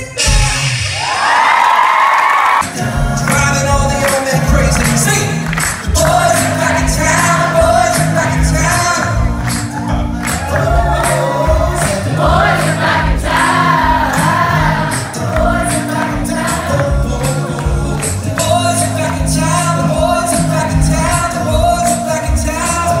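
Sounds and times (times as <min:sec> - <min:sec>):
male a cappella group singing: 0:02.6 - 0:05.2, 0:05.9 - 0:09.0, 0:10.4 - 0:23.0.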